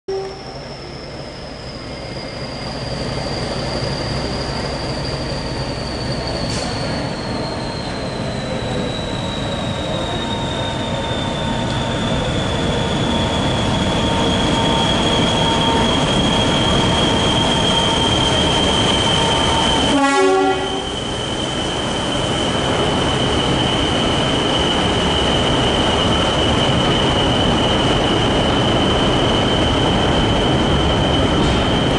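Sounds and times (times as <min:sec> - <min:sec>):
train horn: 0:00.1 - 0:00.6, 0:19.8 - 0:21.0
diesel locomotive engine rumble: 0:00.1 - 0:31.9
high whistle gliding down: 0:00.1 - 0:31.9.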